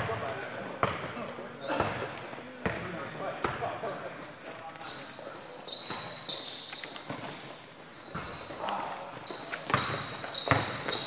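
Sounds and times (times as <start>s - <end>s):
basketball bouncing: 0.0s - 1.1s
sneakers squeaking on court: 0.0s - 11.0s.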